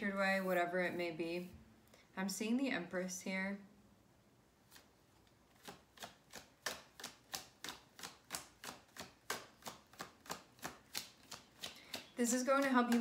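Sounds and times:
cards being shuffled: 4.7s - 13.0s.

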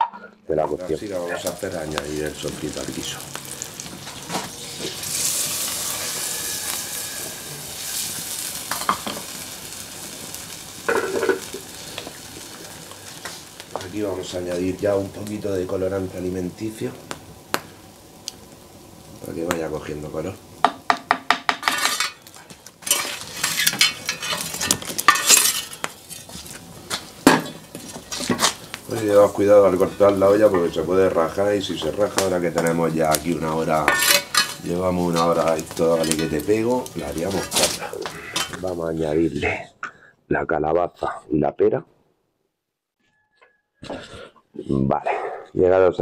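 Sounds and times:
fire iron scraping logs: 0.0s - 15.8s, 19.1s - 39.6s
fried sauce sizzling in stew: 0.7s - 39.1s
wooden spoon stirring pot: 20.6s - 30.8s, 31.6s - 38.8s
wooden spoon in earthenware pot: 33.7s - 38.6s.

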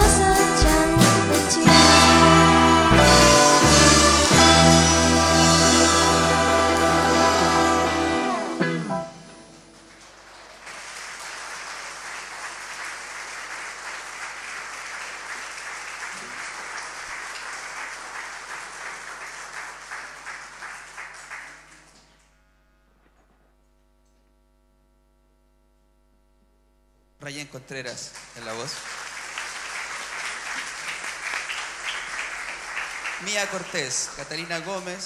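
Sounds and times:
audience applause: 2.1s - 8.9s, 9.6s - 22.1s, 28.1s - 35.0s
faint steady hum: 19.8s - 32.7s.

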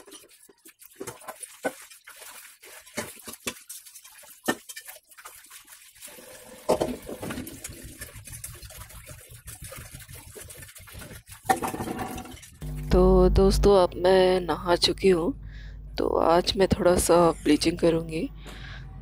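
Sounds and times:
metal pots clanking: 6.4s - 8.2s, 11.4s - 12.6s.

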